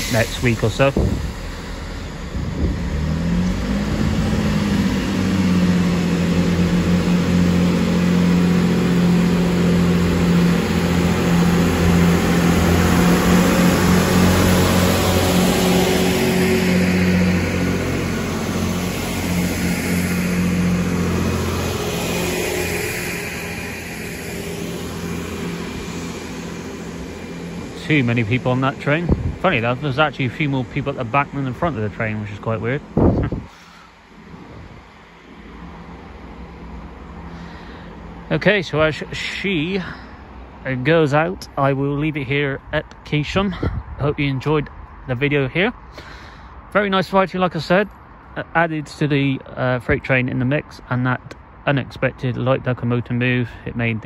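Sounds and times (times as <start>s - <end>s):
train diesel engines revving: 0.0s - 42.7s.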